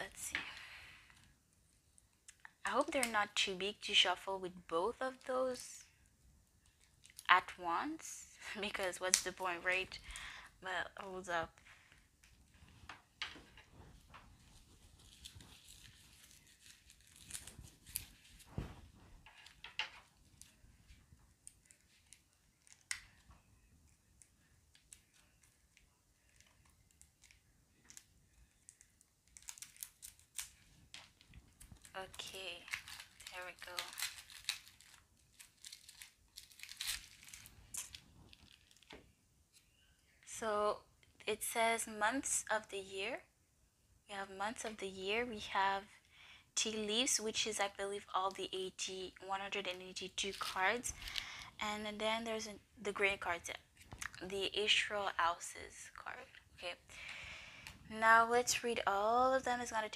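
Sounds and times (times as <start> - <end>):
plastic shrink wrap crinkling: 6.6 - 7.6, 11.6 - 39.7, 49.7 - 51.5
cardboard cards set on a table: 11.5 - 40.3.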